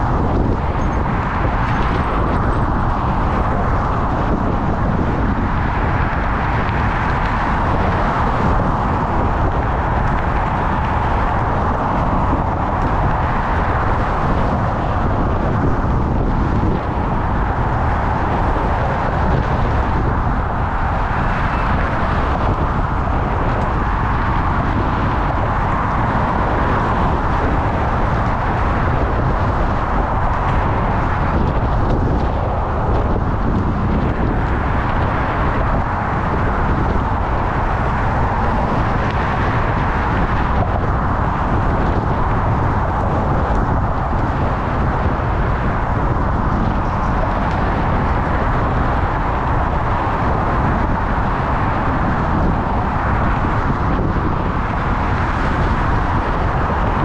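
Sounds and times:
motor traffic: 0:00.0 - 0:57.0
road noise: 0:00.0 - 0:57.0
wind rushing: 0:00.0 - 0:57.0.

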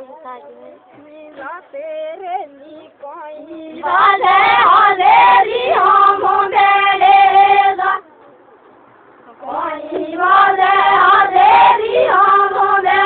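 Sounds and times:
women singing together: 0:00.9 - 0:08.0, 0:09.3 - 0:13.0.

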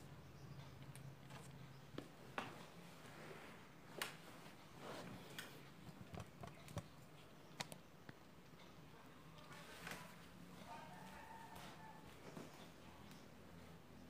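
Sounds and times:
faint low hum: 0:00.0 - 0:14.0
faint clicks and taps: 0:05.2 - 0:10.4.

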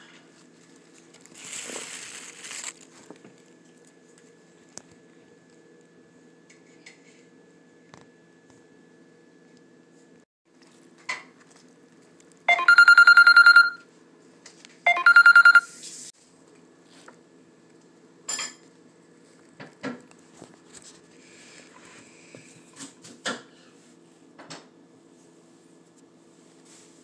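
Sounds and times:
telephone ringing: 0:12.5 - 0:13.9, 0:14.9 - 0:15.8.

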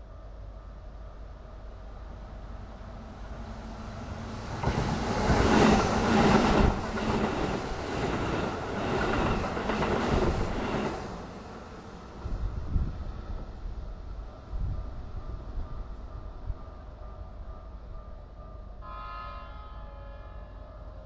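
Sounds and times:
train wheels on rails: 0:03.7 - 0:17.4.

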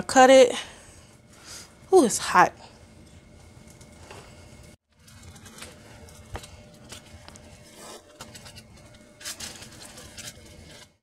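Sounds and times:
fork and knife scraping potatoes: 0:07.0 - 0:11.0.

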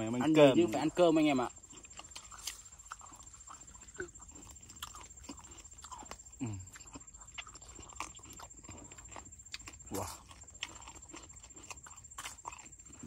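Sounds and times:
wet chewing and smacking: 0:00.5 - 0:13.0.

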